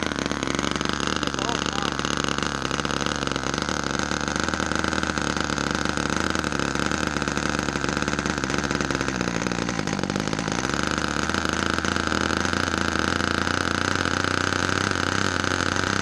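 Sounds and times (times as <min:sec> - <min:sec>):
model plane engine whining: 0:00.0 - 0:16.0.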